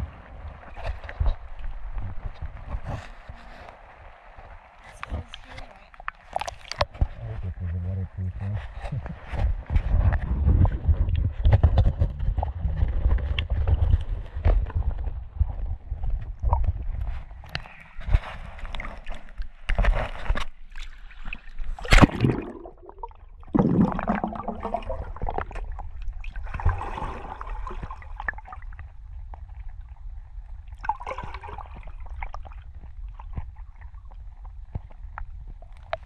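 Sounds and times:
underwater sloshing and gurgling: 0.0 - 36.0
steady low rumble: 7.0 - 17.4.

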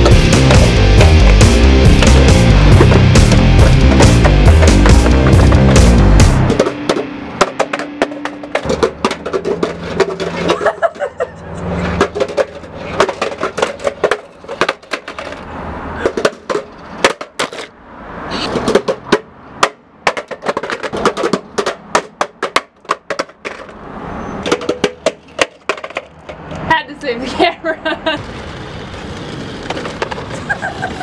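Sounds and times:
music: 0.0 - 10.6.

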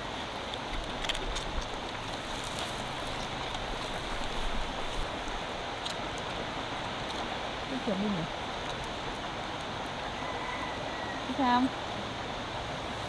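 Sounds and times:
faint ticks and drips: 0.0 - 10.4
rushing water: 0.0 - 13.0.

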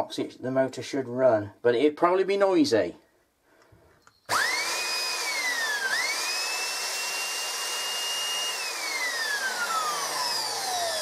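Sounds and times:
electric motor whining: 4.3 - 11.0.

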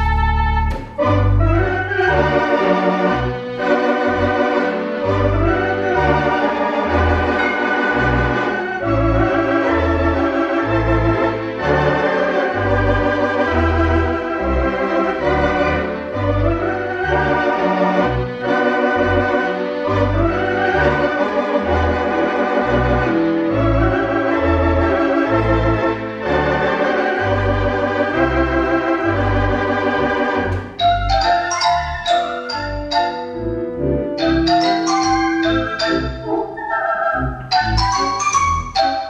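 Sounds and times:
theatre organ playing a slow song: 0.0 - 39.0
bright struck xylophone notes: 30.8 - 33.4, 34.2 - 36.5, 37.5 - 39.0.

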